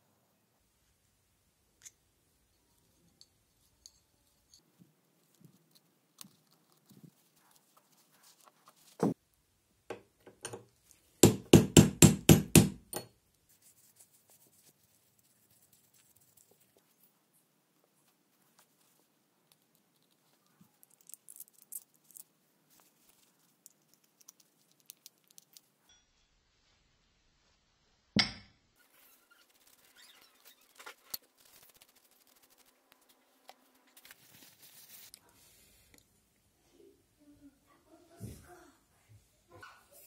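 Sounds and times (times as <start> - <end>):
sharp knocks on metal parts: 9.9 - 13.1, 28.2 - 28.5.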